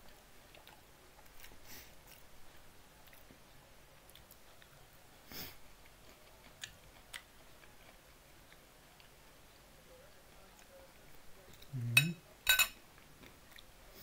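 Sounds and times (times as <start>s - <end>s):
person chewing food: 0.0s - 12.0s, 12.8s - 14.0s.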